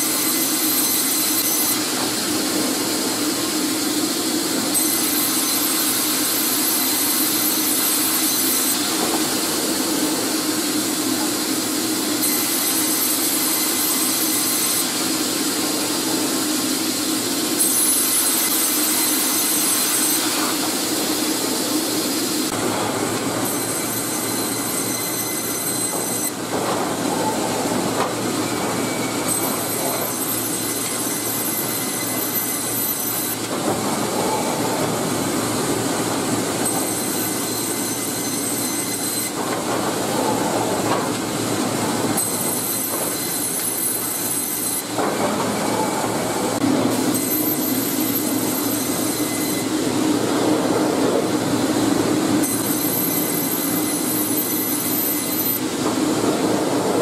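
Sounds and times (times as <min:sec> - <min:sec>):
high machine whine: 0:00.0 - 0:57.0
clatter and rumble of machinery: 0:08.7 - 0:14.1, 0:22.5 - 0:57.0.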